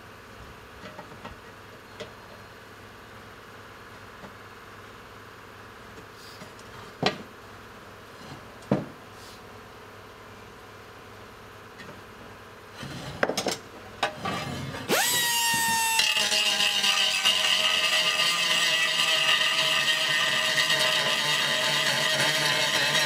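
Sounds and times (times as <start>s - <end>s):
power grinder grinding metal: 14.2s - 23.0s.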